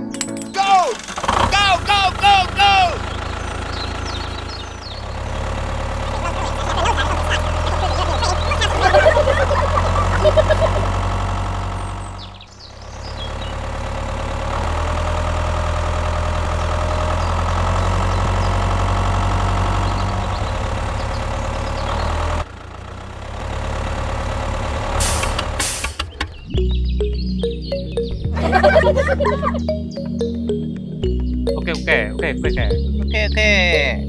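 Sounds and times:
tractor engine idling: 0.0 - 34.0.

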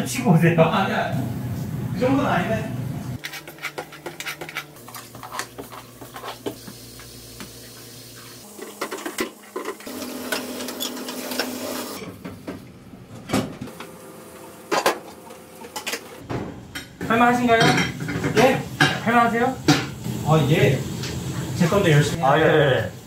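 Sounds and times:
tap spraying water: 5.1 - 12.0.

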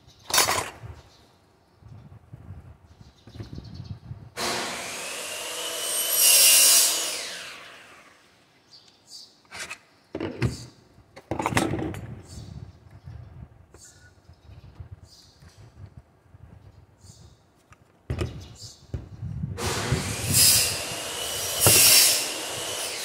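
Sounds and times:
router motor running: 4.4 - 8.2, 19.6 - 23.0.

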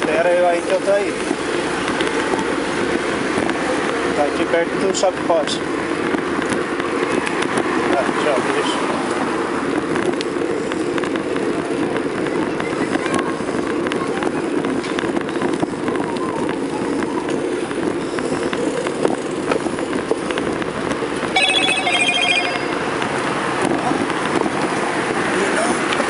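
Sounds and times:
road noise: 0.0 - 26.0
high ringing trill: 21.4 - 22.9.

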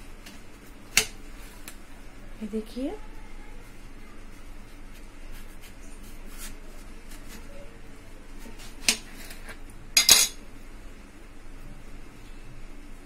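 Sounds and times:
knife scraping watermelon rind: 4.8 - 7.7, 8.3 - 9.6.

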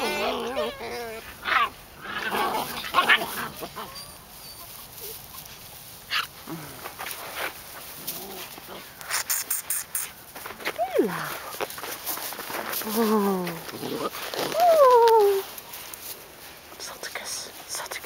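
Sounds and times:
puppies whining: 0.0 - 5.5
puppies yipping: 0.0 - 6.4.

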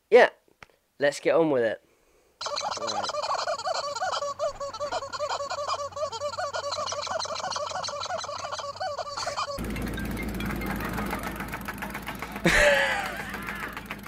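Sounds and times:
rubber chicken toy squawking: 2.4 - 9.6.

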